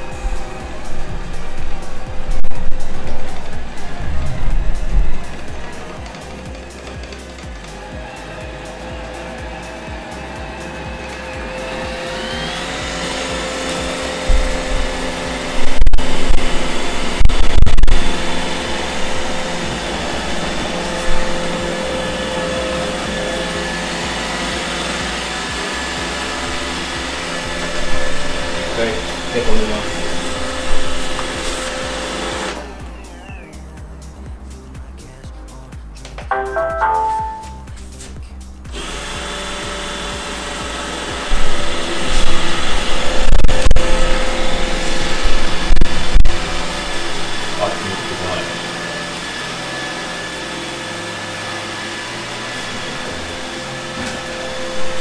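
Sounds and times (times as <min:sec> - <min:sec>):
vacuum motor and brushes whining: 0:00.0 - 0:33.0, 0:38.7 - 0:55.0
robot vacuum whirring: 0:11.6 - 0:32.6
robot vacuum beep tune: 0:36.3 - 0:37.7.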